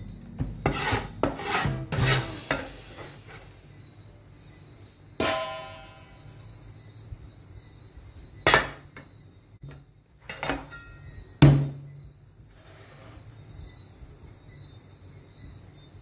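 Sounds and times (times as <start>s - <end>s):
small clink: 10.3s - 11.2s.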